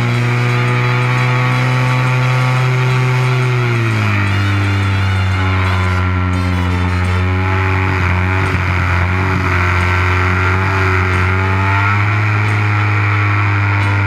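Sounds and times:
model aeroplane engine and propeller: 0:00.0 - 0:14.0.

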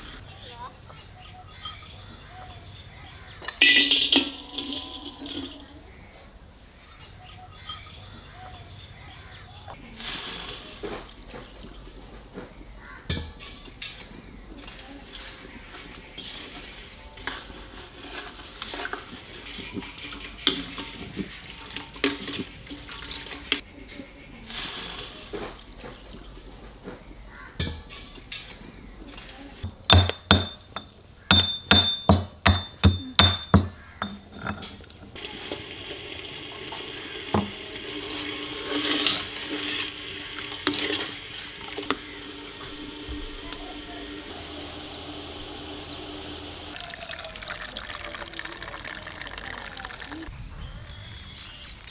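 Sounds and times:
metal box lid clinking: 0:03.5 - 0:05.6, 0:29.6 - 0:42.0
water hissing in a hot pan: 0:09.9 - 0:11.2, 0:24.4 - 0:25.6, 0:35.2 - 0:50.3
pestle striking metal mortar: 0:29.6 - 0:35.7, 0:36.7 - 0:38.1.

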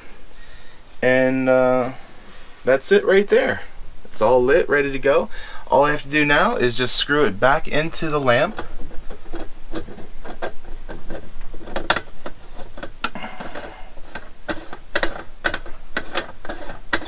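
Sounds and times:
metal threads clicking and scraping: 0:08.2 - 0:17.0.

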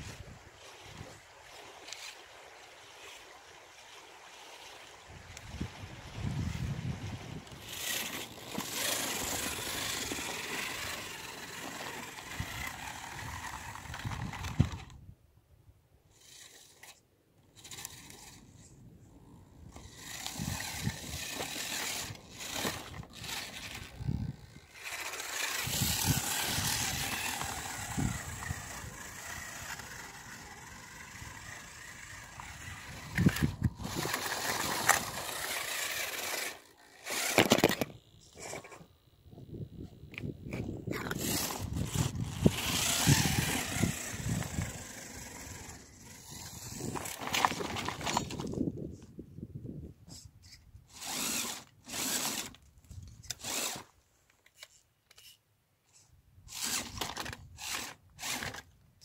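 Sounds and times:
toy car bumping over rocks: 0:07.4 - 0:15.0, 0:16.2 - 0:18.5, 0:19.7 - 0:39.0, 0:40.0 - 0:48.8, 0:50.9 - 0:55.4, 0:56.5 - 0:58.7
stones crunching under tyres: 0:40.9 - 0:48.6.

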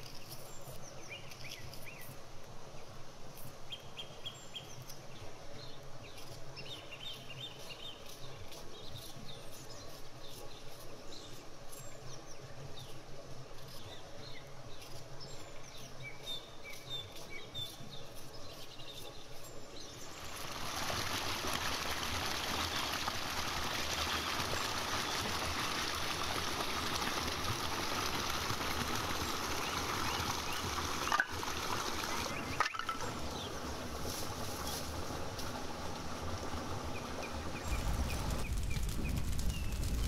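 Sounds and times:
water rushing down stone channel: 0:20.0 - 0:38.5
birds chirping: 0:29.2 - 0:33.9, 0:36.8 - 0:40.0.

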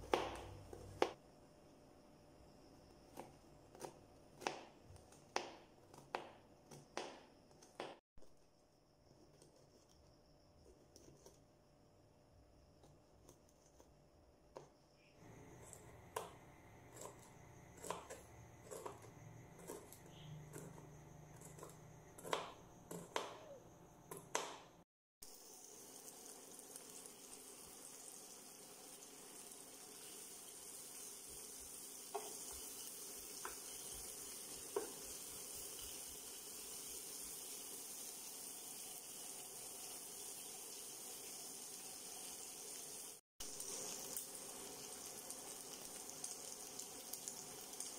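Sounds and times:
knife chopping on plastic board: 0:00.0 - 0:01.2, 0:03.1 - 0:08.0, 0:15.8 - 0:24.8
fish frying in oil: 0:25.2 - 0:47.9.

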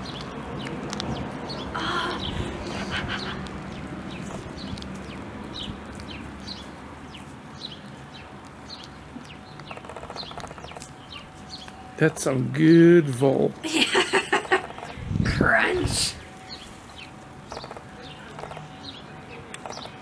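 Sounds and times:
cat chewing and crunching bones: 0:03.3 - 0:11.8.

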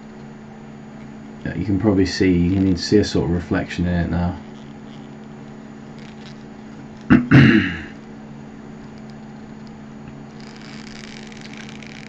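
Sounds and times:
low electrical hum: 0:00.0 - 0:12.0
soft hiss: 0:01.4 - 0:07.1.

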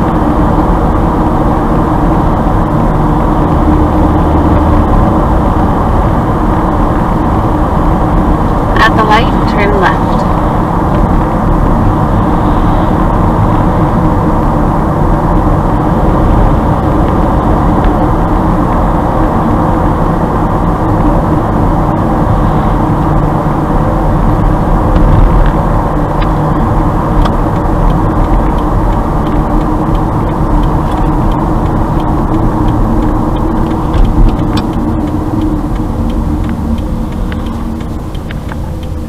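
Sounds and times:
car driving road noise: 0:00.0 - 0:39.0.

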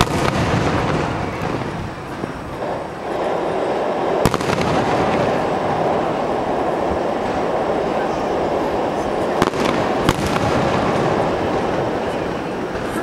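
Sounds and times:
sharp firework bang: 0:00.0 - 0:03.4, 0:04.1 - 0:06.2, 0:09.3 - 0:12.0
firework shells bursting: 0:00.0 - 0:13.0.

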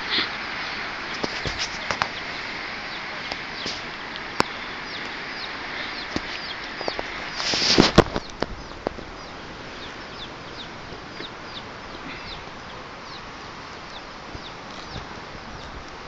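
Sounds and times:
chickens peeping: 0:00.0 - 0:16.0
sharp clicks: 0:07.7 - 0:09.0.

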